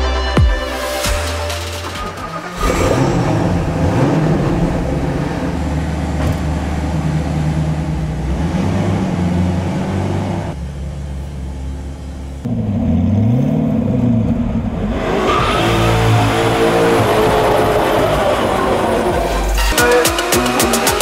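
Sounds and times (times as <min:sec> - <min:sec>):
car engine starting: 0:00.8 - 0:21.0
car engine idling with throttle blips: 0:02.2 - 0:14.8.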